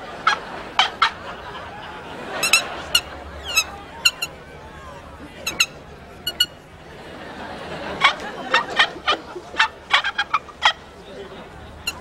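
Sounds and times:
bird's short sharp calls: 5.4s - 6.6s.

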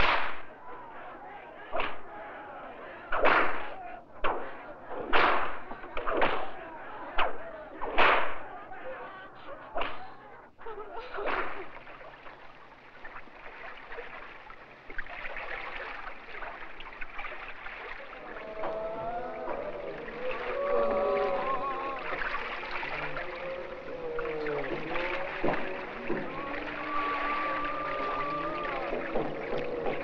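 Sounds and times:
whip cracks: 0.0s - 0.5s, 1.7s - 2.0s, 3.1s - 6.6s, 7.2s - 8.4s, 9.8s - 10.0s, 11.2s - 11.8s
soft steady wash of sound: 11.8s - 30.0s.

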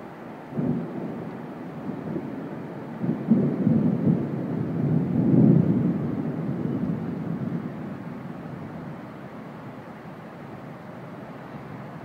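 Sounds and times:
steady rain: 0.0s - 12.0s
thunder rumbling: 0.5s - 9.3s.

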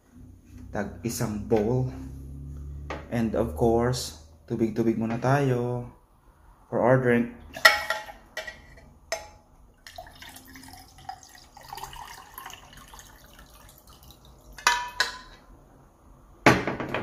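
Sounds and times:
water pouring into a glass: 9.8s - 14.7s.

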